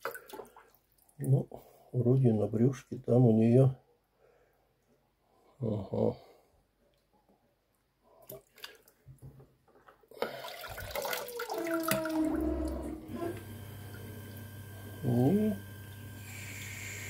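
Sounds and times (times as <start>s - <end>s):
water sloshing in plastic bucket: 0.0s - 1.0s, 10.2s - 12.3s.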